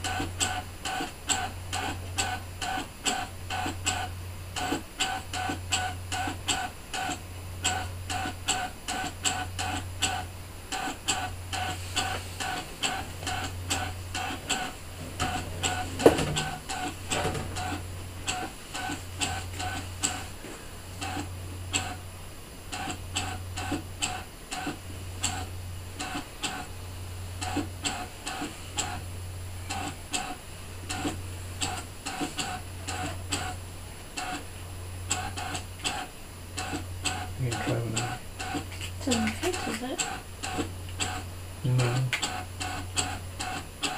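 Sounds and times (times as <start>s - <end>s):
cutting machine motors whirring: 0.0s - 20.2s, 35.1s - 43.9s.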